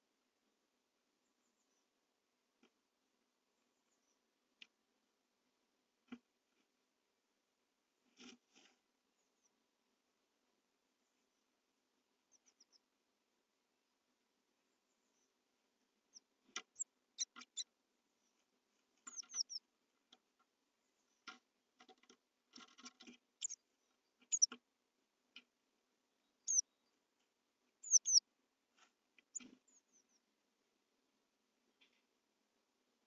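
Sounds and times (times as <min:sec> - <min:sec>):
bird scratching and tapping on wood: 0:21.2 - 0:23.4
bird high falling calls: 0:27.8 - 0:28.2.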